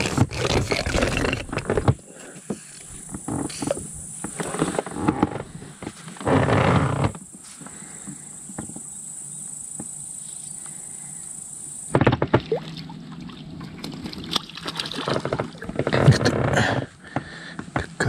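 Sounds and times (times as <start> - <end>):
high-pitched hiss: 2.3 - 5.0
water sloshing and splashing: 12.0 - 16.1.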